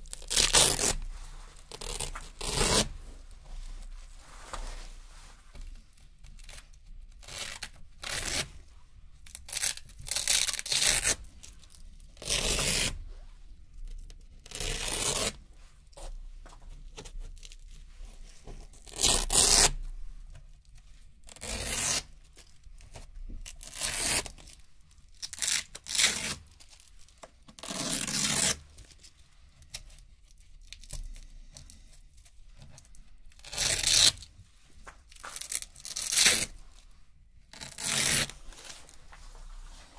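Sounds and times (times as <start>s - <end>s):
velcro strips ripping: 0.0s - 3.0s, 7.2s - 8.5s, 9.4s - 11.2s, 12.2s - 13.0s, 14.4s - 15.4s, 18.8s - 19.8s, 21.3s - 22.2s, 23.5s - 24.6s, 25.2s - 27.0s, 27.6s - 28.6s, 33.3s - 34.3s, 35.1s - 36.8s, 37.5s - 39.0s.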